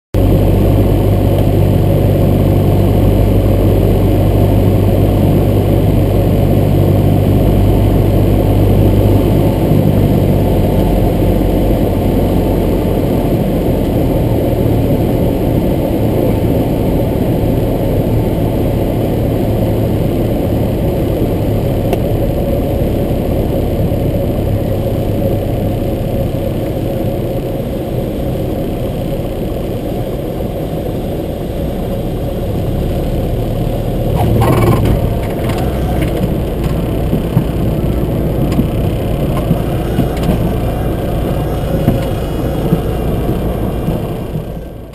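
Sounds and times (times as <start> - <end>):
propeller plane engine droning: 0.2 - 44.9
airflow noise: 34.1 - 44.9.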